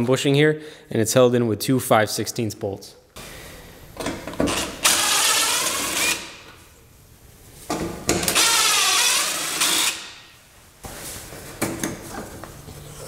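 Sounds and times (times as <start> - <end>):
power drill motor whining: 4.5 - 6.3, 8.3 - 10.0.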